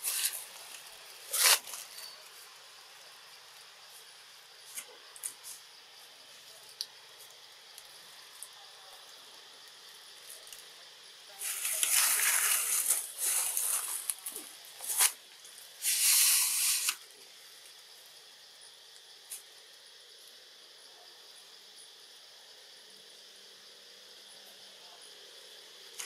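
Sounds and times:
faint insect hum: 0.0 - 26.0
rustling hissing bursts: 11.4 - 17.0.

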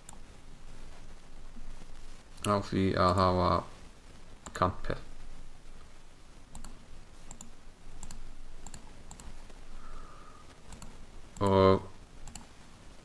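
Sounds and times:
computer mouse clicking: 0.0 - 0.2, 6.5 - 9.5, 10.6 - 11.6, 12.2 - 12.6.

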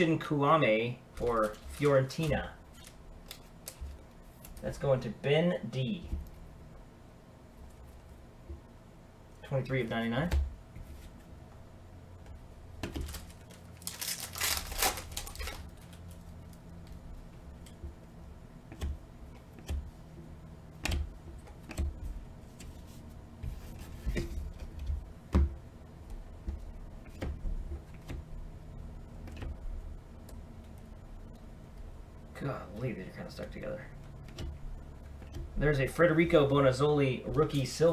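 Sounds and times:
trading cards flipped by hand: 1.2 - 4.6, 12.8 - 16.9
cards scraping together: 1.2 - 4.7.

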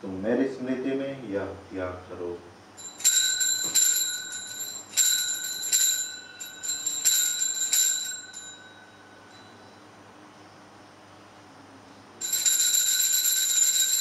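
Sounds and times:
altar bells ringing: 2.8 - 9.9, 12.2 - 14.0.

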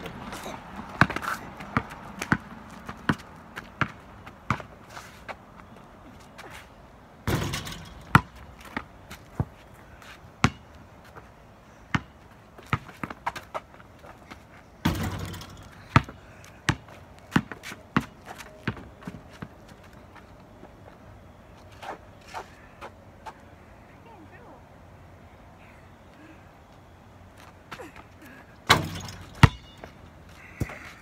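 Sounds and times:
basketball bouncing on concrete: 0.8 - 4.7, 7.3 - 9.5, 10.4 - 10.7, 11.9 - 13.4, 14.8 - 19.5, 28.7 - 30.0
ball hitting rim and backboard: 7.2 - 9.5, 10.4 - 10.6, 14.8 - 16.8, 28.7 - 30.0.

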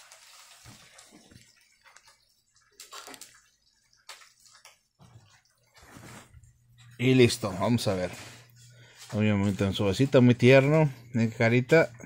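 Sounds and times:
objects rustling and knocking: 2.8 - 7.0.

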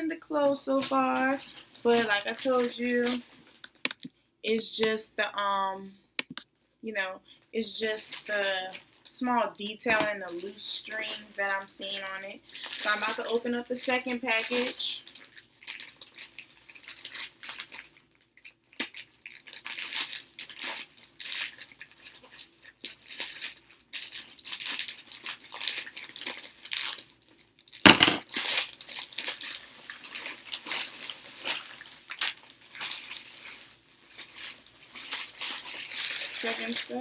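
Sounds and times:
plastic crinkling and rustling: 0.1 - 5.0, 7.0 - 37.0
knock: 27.9 - 28.2.

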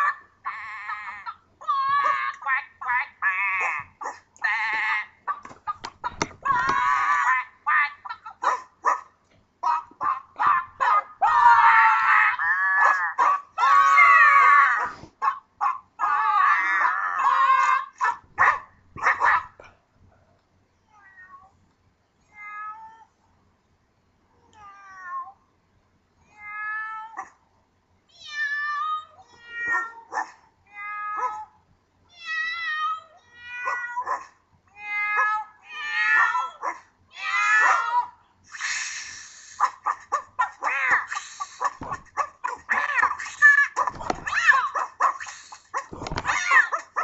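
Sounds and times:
cat meows: 24.5 - 25.4, 28.2 - 31.5, 32.1 - 34.2, 34.8 - 38.1, 40.4 - 47.0.

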